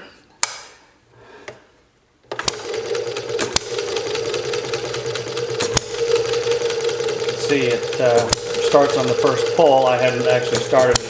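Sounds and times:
model engine clatter: 2.4 - 11.0.

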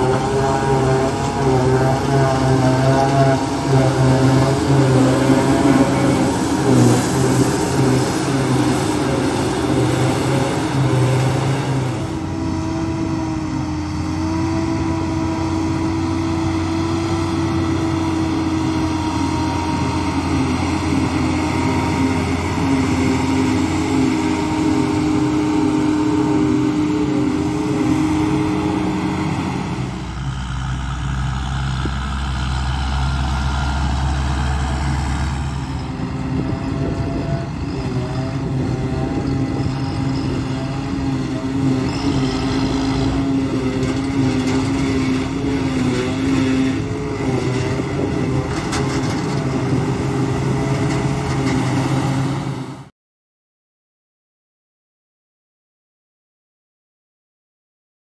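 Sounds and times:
harvester and tractor engine drone: 0.0 - 52.9.

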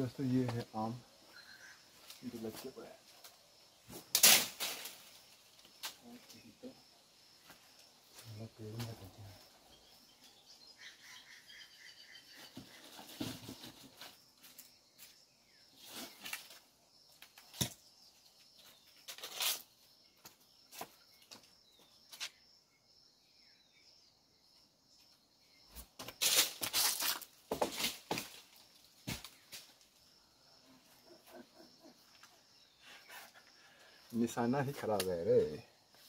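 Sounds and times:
bird chirping: 0.0 - 2.5, 7.6 - 13.8, 14.7 - 26.0
scuffs and knocks: 25.7 - 29.7.

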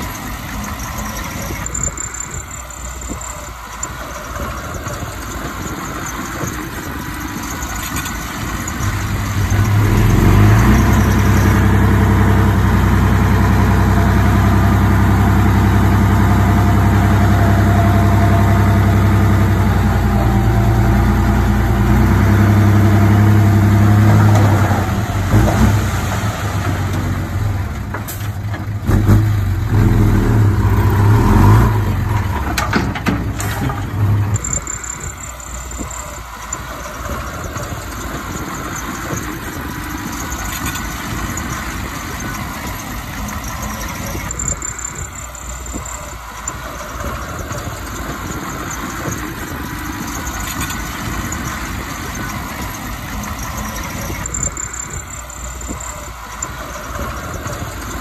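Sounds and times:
heavy machinery diesel engine running: 0.0 - 58.0.

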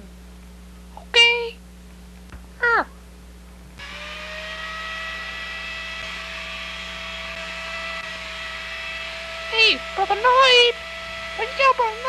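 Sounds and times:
hair dryer motor whine: 3.8 - 12.0.

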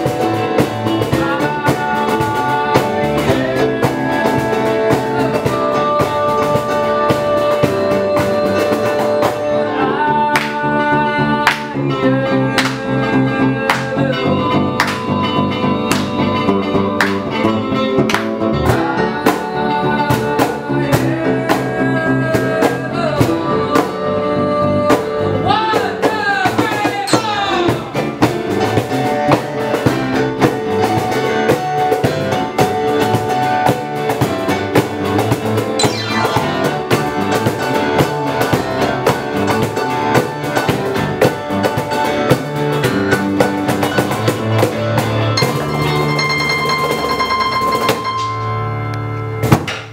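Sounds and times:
person singing: 0.0 - 28.7, 35.8 - 41.4
percussive beat: 25.8 - 29.1, 35.8 - 39.6.

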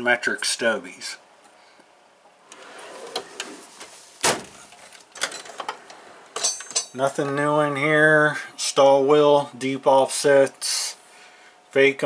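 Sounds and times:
metal drawer sliding: 2.4 - 6.9
drawer clunk: 2.5 - 6.9.

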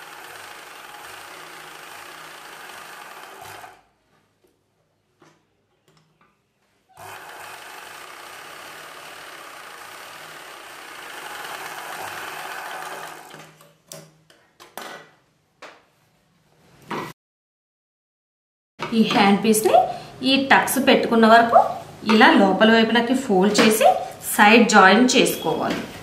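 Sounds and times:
sewing machine running: 0.0 - 3.9, 7.0 - 13.5.

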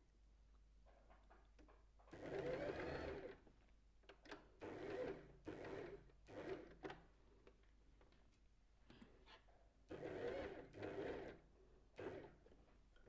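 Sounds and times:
sewing machine stitching: 2.1 - 3.4, 9.9 - 11.4, 12.0 - 12.4.

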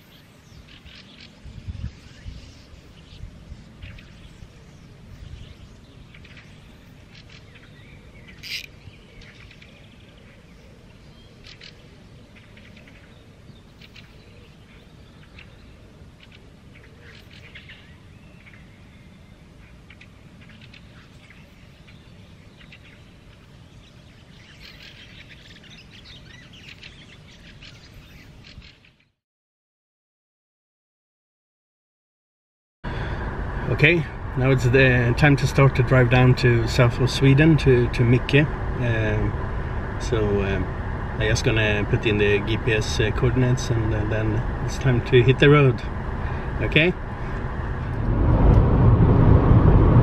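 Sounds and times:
songbirds chirping and singing: 0.0 - 29.2
steady low rumble: 32.8 - 50.0.

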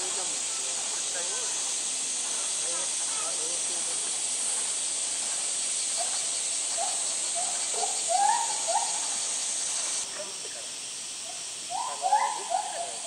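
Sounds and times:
insect chorus hiss: 0.0 - 13.0
short high insect calls: 0.0 - 13.0.

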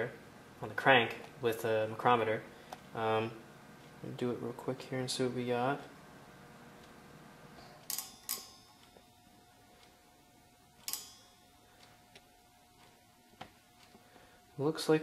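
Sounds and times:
micrometer metallic clicks: 7.6 - 9.1, 10.8 - 14.1.

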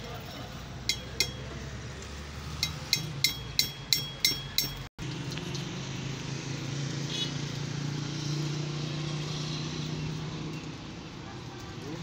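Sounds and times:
metal tool tapping steel: 0.8 - 1.6, 2.6 - 4.9.

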